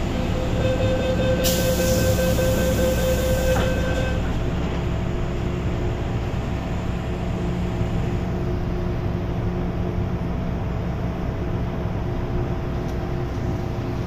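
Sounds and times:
train doors shutting knock: 0:00.0 - 0:04.8
train equipment hum: 0:00.0 - 0:14.0
warning tone: 0:00.1 - 0:04.4.

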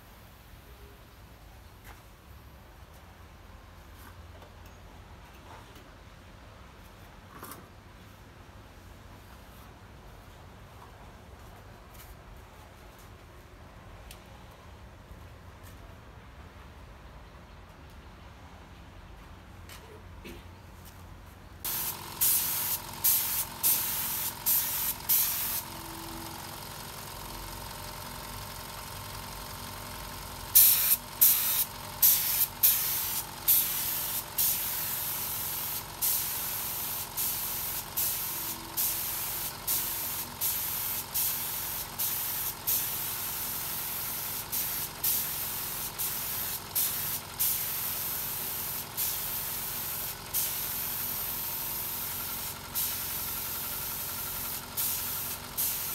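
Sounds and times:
air compressor humming: 0:21.7 - 0:55.9
compressed air spray hissing: 0:21.7 - 0:55.9.

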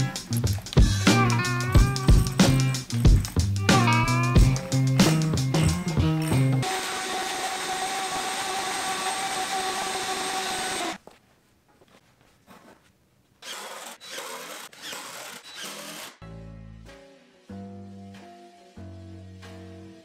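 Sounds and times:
shop vacuum whining: 0:05.1 - 0:11.0
cordless drill bursts: 0:06.6 - 0:11.0, 0:13.4 - 0:16.2.

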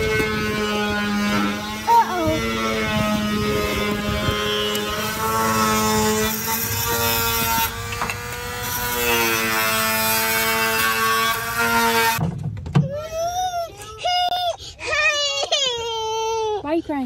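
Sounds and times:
power tool buzzing whine: 0:00.0 - 0:12.2.

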